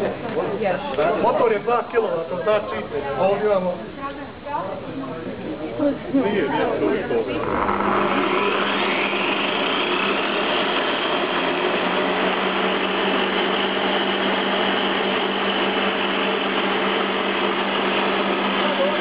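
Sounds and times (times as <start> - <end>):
electric motor humming: 7.2 - 19.0
mechanical running noise: 7.2 - 19.0.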